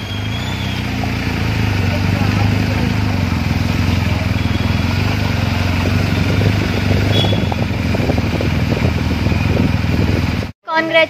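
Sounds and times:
motorcycle engine running: 0:00.0 - 0:10.6
wind rushing over microphone: 0:05.6 - 0:10.5.

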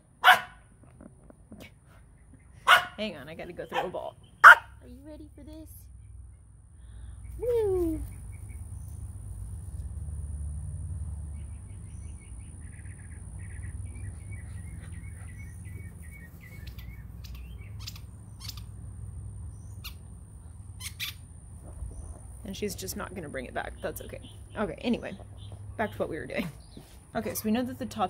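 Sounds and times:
birds chirping: 0:02.0 - 0:09.1, 0:11.3 - 0:18.7, 0:20.8 - 0:28.0.

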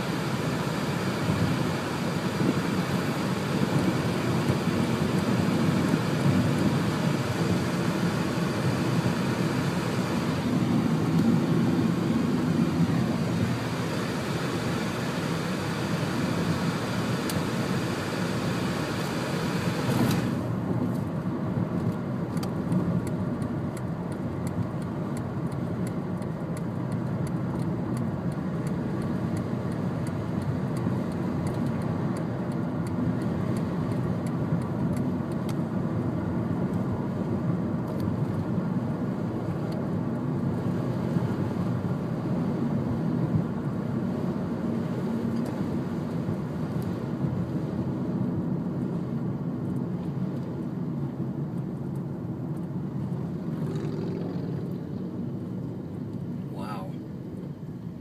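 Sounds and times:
road and engine noise in car: 0:00.0 - 0:58.0
faint light ticks: 0:21.8 - 0:35.6, 0:45.3 - 0:45.6, 0:51.5 - 0:53.2.

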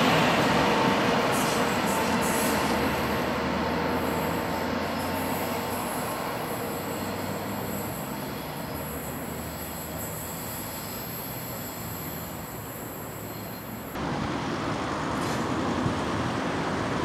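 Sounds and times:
train wheels rushing on rail: 0:00.0 - 0:17.0.

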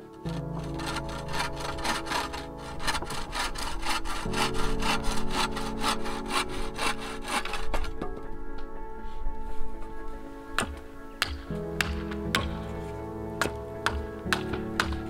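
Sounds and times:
bow saw cutting wood: 0:00.3 - 0:08.1.

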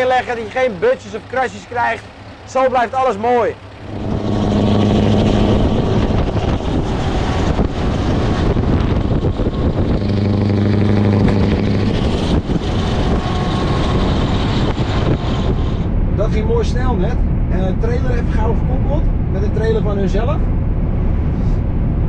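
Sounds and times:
diesel truck engine drone: 0:00.0 - 0:22.0
tyre and wind noise: 0:03.8 - 0:17.5.

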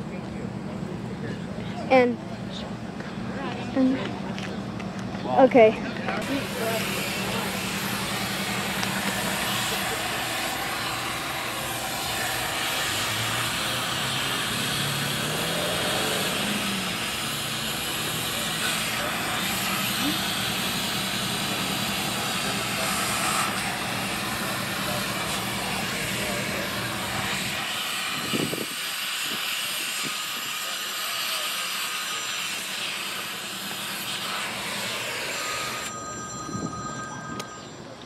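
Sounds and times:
cutting torch hissing: 0:06.2 - 0:35.9.

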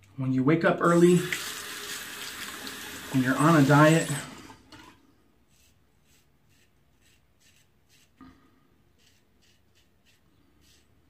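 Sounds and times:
razor scraping stubble: 0:05.5 - 0:11.0.

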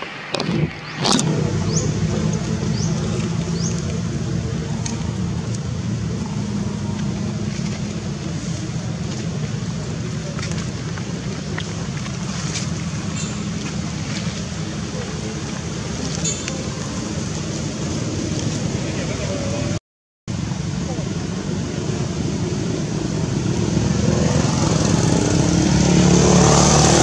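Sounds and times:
engine idling: 0:00.4 - 0:18.2.

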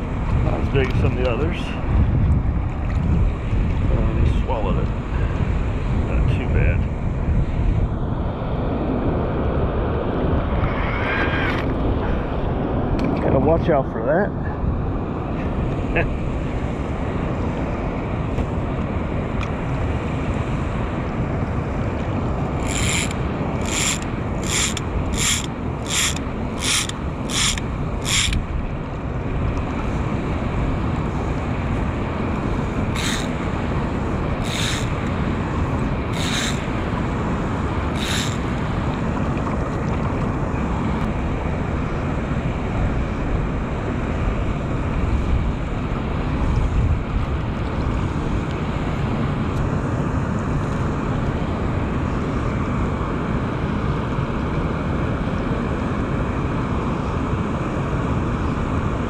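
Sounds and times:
wind noise on microphone: 0:00.0 - 0:13.6, 0:14.4 - 0:59.0
fishing line zips: 0:22.6 - 0:28.4, 0:32.9 - 0:33.4, 0:34.4 - 0:35.0, 0:36.1 - 0:36.7, 0:37.9 - 0:38.5.

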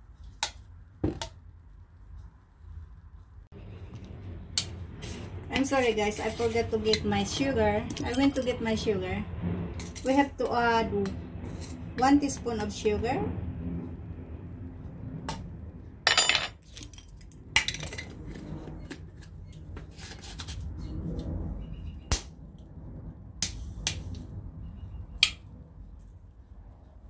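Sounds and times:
glass and metal clinking: 0:16.1 - 0:17.9.

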